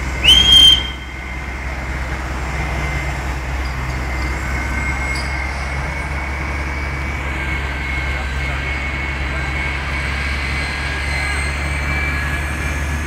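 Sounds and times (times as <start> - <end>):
engines idling: 0.0 - 13.0
road traffic rumble: 0.0 - 13.0
high-pitched squeal: 0.1 - 1.7.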